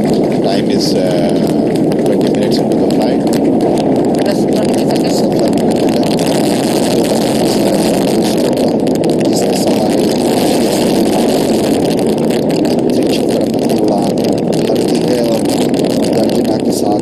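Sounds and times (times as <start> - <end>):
rocket boosters roaring: 0.0 - 17.0.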